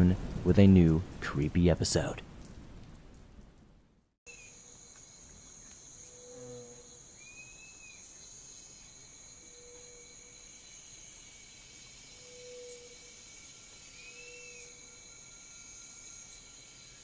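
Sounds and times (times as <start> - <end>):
crickets trilling: 4.3 - 17.0.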